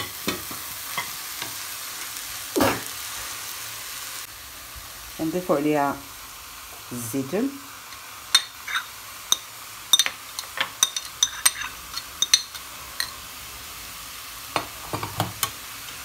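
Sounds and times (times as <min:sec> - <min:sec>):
filling sizzling in a pan: 0:00.0 - 0:16.0
metal spoon clinking on glass bowl: 0:08.3 - 0:13.2.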